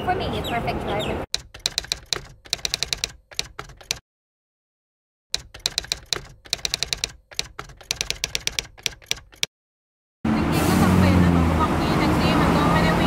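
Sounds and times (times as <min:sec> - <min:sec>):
keyboard key clicks: 0:01.4 - 0:04.0, 0:05.4 - 0:09.5.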